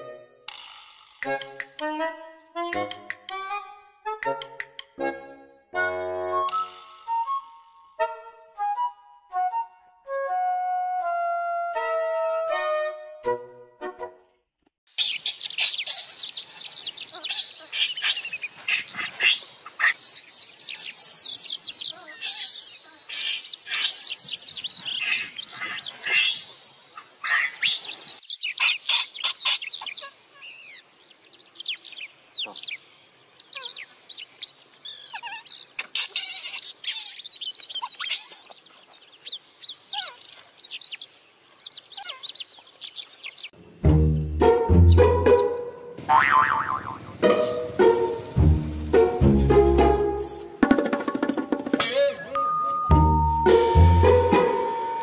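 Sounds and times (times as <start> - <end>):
small birds twittering: 14.9 - 43.8.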